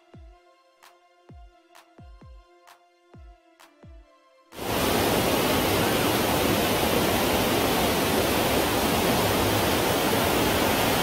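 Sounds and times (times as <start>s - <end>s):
river water rushing: 4.6s - 11.0s.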